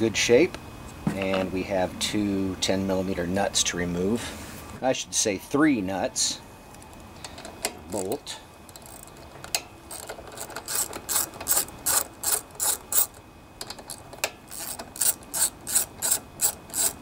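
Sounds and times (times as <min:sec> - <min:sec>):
ratchet wrench clicking: 0:08.7 - 0:09.3, 0:09.9 - 0:17.0.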